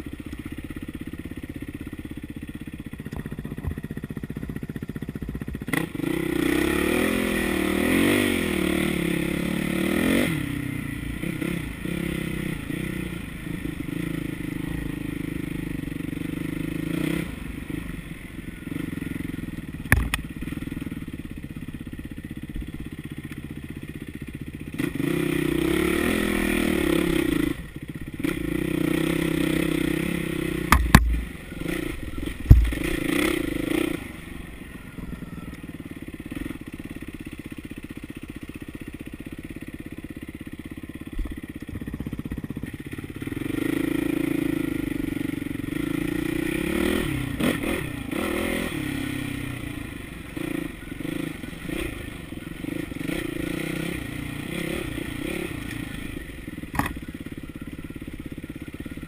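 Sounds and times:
dirt bike engine revving: 0:03.0 - 0:21.1, 0:24.7 - 0:35.5, 0:41.3 - 0:59.0
sharp knock: 0:30.7 - 0:31.2.

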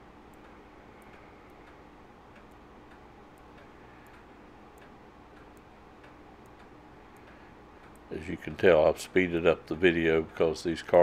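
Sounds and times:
faint steady hum: 0:00.0 - 0:11.0
light ticking: 0:00.2 - 0:10.8.

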